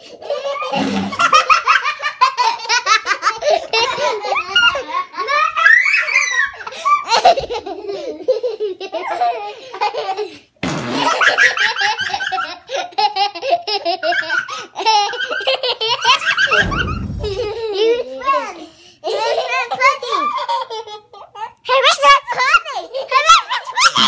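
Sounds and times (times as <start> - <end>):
children laughing: 0.0 - 10.5, 11.1 - 18.4, 19.1 - 21.4
whoopie cushion blast: 16.5 - 18.0.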